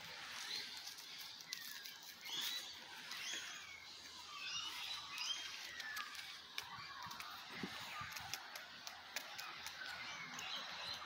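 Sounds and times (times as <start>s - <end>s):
magpies whistled calls: 1.4s - 8.0s.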